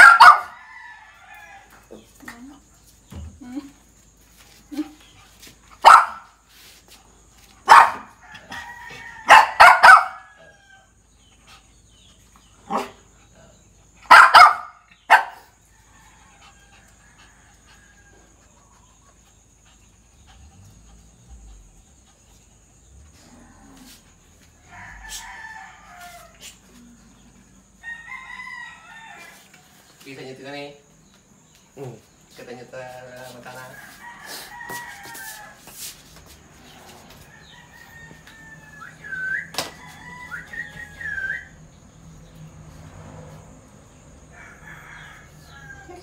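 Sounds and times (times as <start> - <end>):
dog barking: 0.0 - 0.6, 5.8 - 6.3, 7.6 - 8.2, 9.2 - 10.3, 12.7 - 13.0, 14.1 - 15.5.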